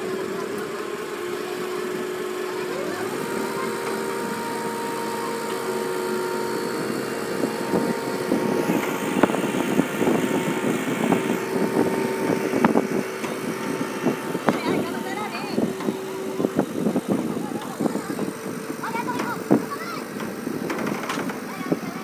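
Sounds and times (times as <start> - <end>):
crane diesel engine running: 0.0 - 22.0
steady whine: 0.0 - 22.0
knocks and clanks: 18.9 - 21.7.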